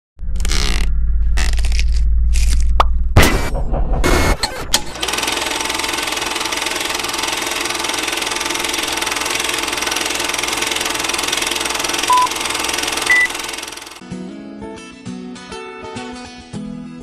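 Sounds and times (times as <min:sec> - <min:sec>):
film projector rattle: 0:04.8 - 0:14.0
short countdown beeps: 0:12.1 - 0:12.3, 0:13.1 - 0:13.4.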